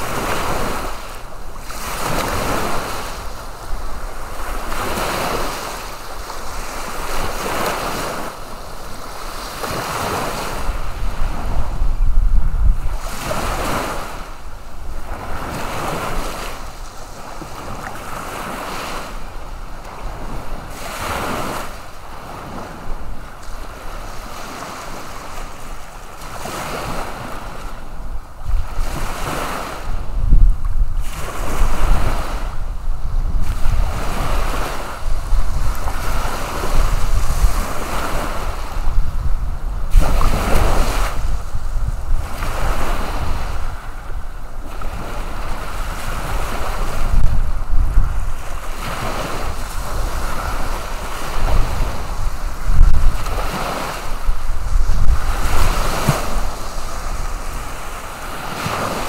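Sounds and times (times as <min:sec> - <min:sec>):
small waves breaking on shore: 0:00.0 - 0:59.0
wind rumble on microphone: 0:00.0 - 0:59.0.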